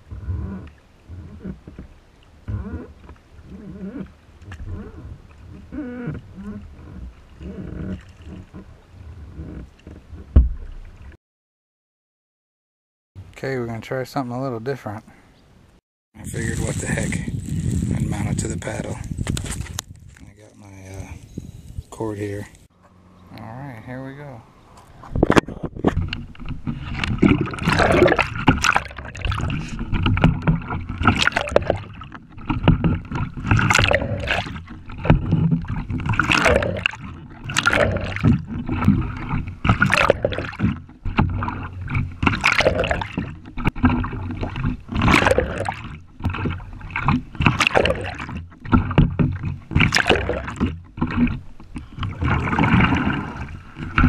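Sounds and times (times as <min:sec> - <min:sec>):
paddle splashing water: 0:00.0 - 0:11.2, 0:24.6 - 0:54.0
sharp knocks: 0:10.3 - 0:10.9.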